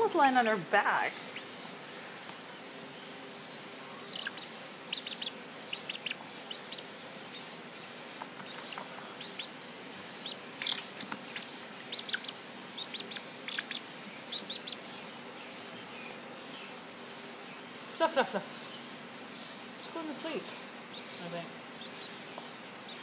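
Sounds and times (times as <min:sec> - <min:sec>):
bird chirps: 0:04.0 - 0:07.7, 0:08.4 - 0:16.8.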